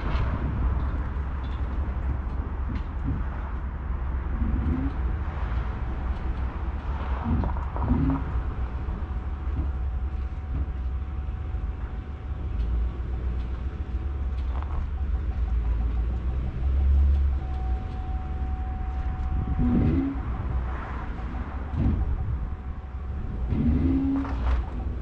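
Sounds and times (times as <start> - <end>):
pickup truck engine rumble: 0.0 - 25.0
faint electronic beeping tone: 14.5 - 25.0.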